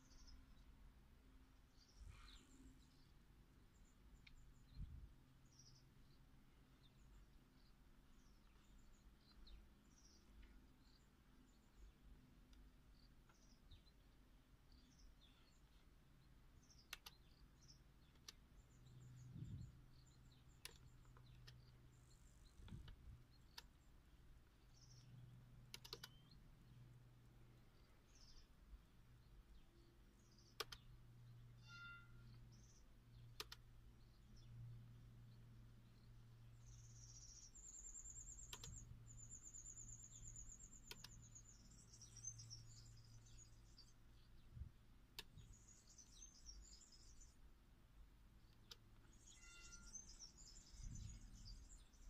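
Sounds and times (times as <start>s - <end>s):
faint low hum: 0.0s - 52.0s
laptop keys clicking: 25.7s - 26.4s, 30.4s - 30.9s, 33.4s - 33.6s, 38.4s - 38.8s, 40.7s - 41.2s
faint high chirps: 27.6s - 47.4s, 48.4s - 52.0s.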